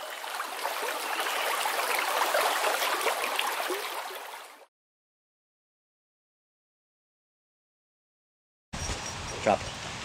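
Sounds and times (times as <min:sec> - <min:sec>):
stream water burbling: 0:00.0 - 0:04.7.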